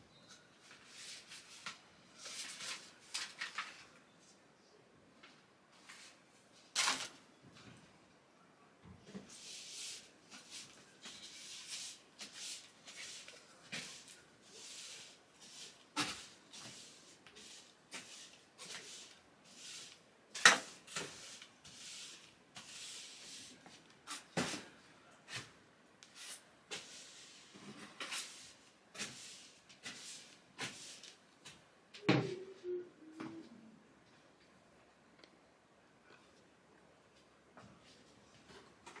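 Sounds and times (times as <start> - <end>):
broom sweeping floor: 0.2 - 4.4, 5.7 - 7.2, 9.1 - 32.4.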